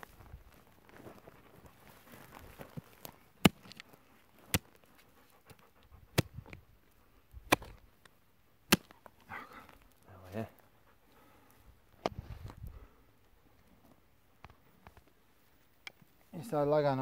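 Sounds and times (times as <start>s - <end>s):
hoe chopping stony soil: 2.7s - 4.8s, 6.1s - 6.6s, 7.4s - 7.8s, 8.7s - 9.1s.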